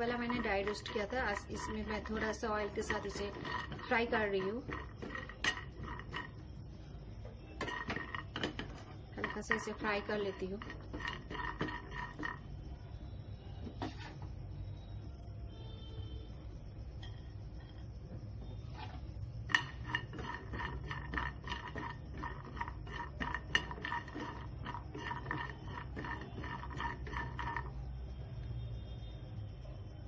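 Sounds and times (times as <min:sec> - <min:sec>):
spatula stirring nuts in a pan: 0:00.0 - 0:12.7, 0:18.7 - 0:28.0.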